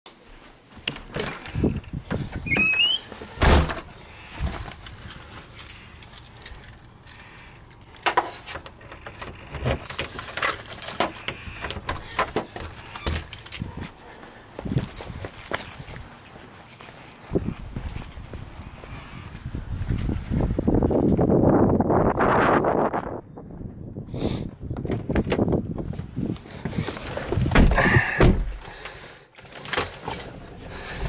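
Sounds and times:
footsteps on concrete steps: 9.8 - 21.2.

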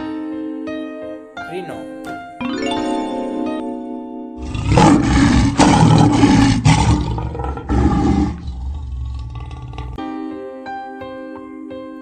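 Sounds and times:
large animal roaring: 4.4 - 10.0.

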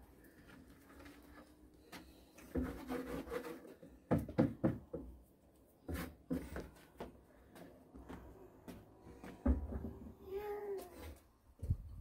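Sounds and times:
hard object scrape: 2.3 - 3.9.

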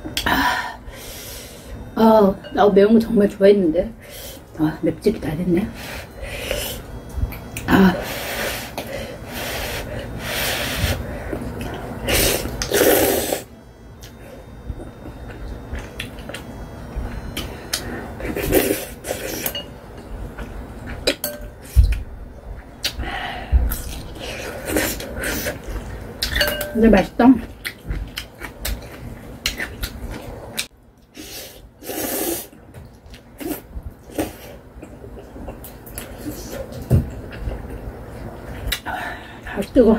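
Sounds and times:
person slurping noodles: 12.1 - 13.5, 31.2 - 32.6.

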